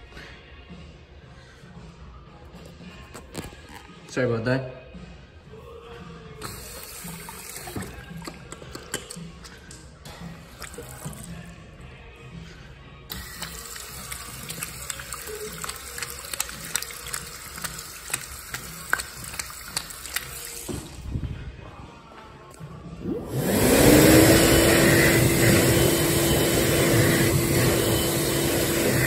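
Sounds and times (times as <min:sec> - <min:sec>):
sink tap water splashing on hands: 0:06.4 - 0:09.8, 0:10.4 - 0:11.4, 0:13.1 - 0:20.8.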